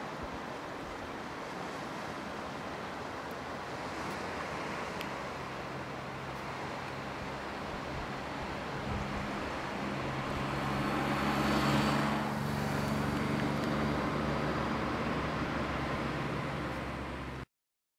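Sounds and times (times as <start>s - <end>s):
vehicle passing: 6.5s - 17.4s.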